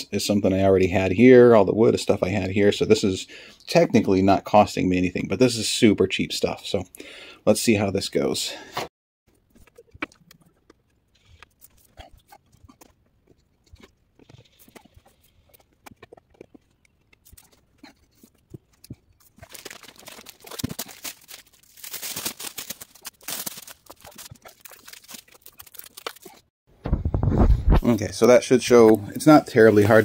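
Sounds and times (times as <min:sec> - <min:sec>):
plastic film crinkling: 0:17.2 - 0:26.5.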